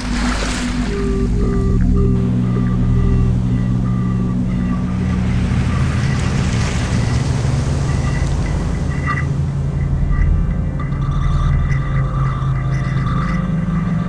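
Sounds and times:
faint high held tones: 0.0 - 14.0
low steady drone: 0.0 - 14.0
ocean surf: 0.0 - 14.0.

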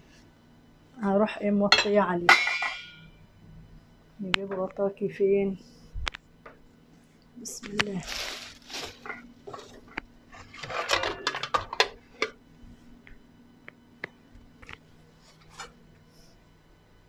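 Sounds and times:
metal cookware clattering: 1.7 - 3.1, 10.5 - 12.3.

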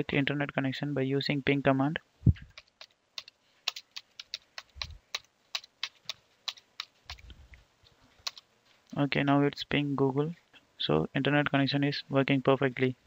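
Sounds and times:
keyboard typing: 2.5 - 7.3, 8.2 - 8.5.

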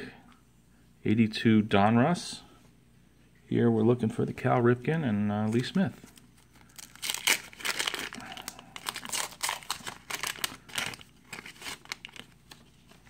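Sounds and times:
wax-paper wrapper tearing: 6.1 - 13.0.

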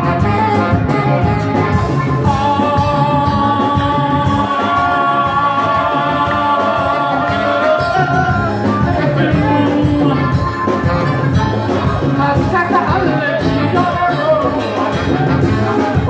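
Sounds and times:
electric bass: 0.0 - 16.0
man singing into a microphone: 1.9 - 11.2, 12.7 - 16.0.

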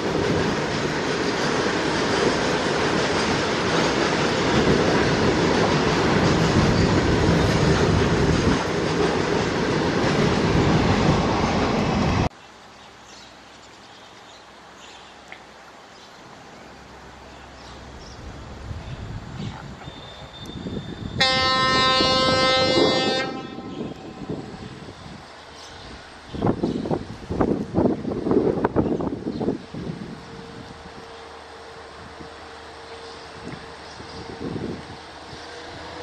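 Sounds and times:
approaching diesel locomotive: 0.0 - 12.3, 15.6 - 36.0
freight wagons rumbling on rails: 0.0 - 12.3, 16.8 - 36.0.

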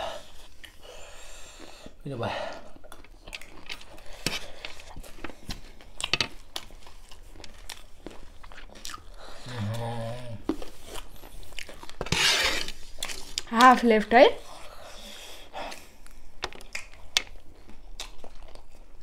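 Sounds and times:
crunching and chewing snack: 2.6 - 13.5, 14.5 - 19.0
person humming: 9.4 - 10.5.

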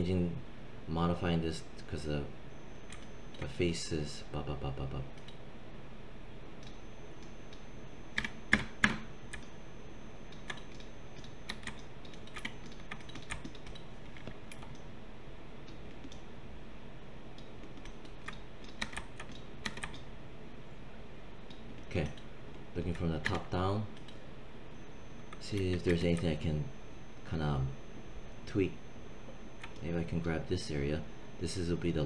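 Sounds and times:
computer keyboard keys tapping: 2.9 - 3.5, 6.6 - 9.6, 10.3 - 14.9, 15.6 - 16.3, 17.4 - 20.1, 29.6 - 29.9.

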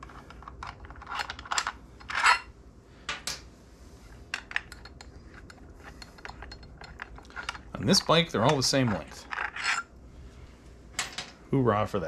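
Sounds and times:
small screws clinking and scraping: 0.0 - 2.5, 4.2 - 9.9.

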